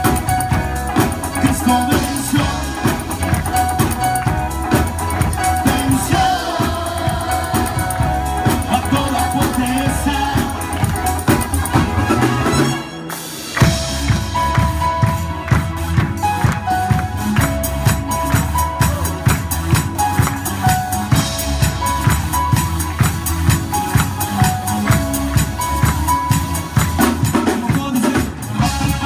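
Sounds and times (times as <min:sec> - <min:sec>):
live band playing: 0:00.0 - 0:29.0
voices singing: 0:05.2 - 0:12.9.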